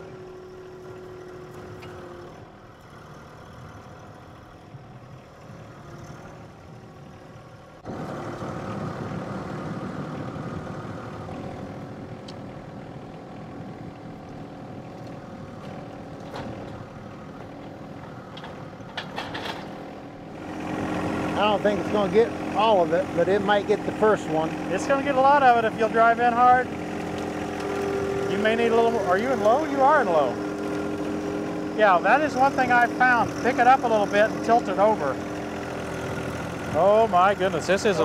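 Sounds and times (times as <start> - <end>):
tractor diesel engine running: 0.0 - 38.0
steady whine: 7.8 - 38.0.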